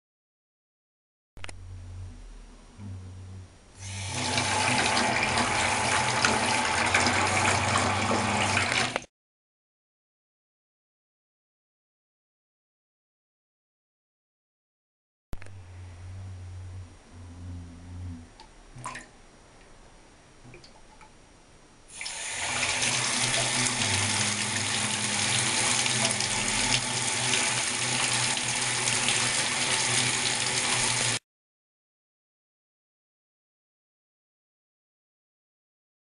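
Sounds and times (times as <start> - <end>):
water rushing from tap: 3.8 - 9.1, 21.9 - 31.2.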